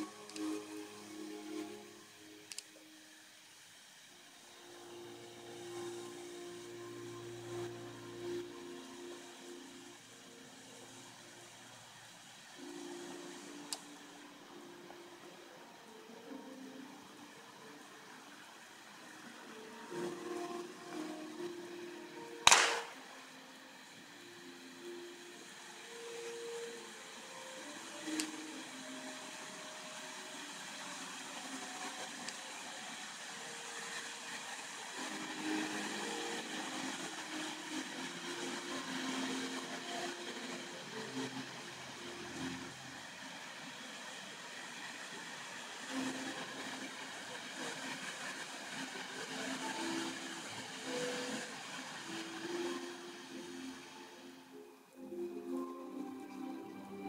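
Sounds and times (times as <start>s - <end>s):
fireworks hissing: 0.0s - 57.0s
sharp crack: 22.4s - 23.0s.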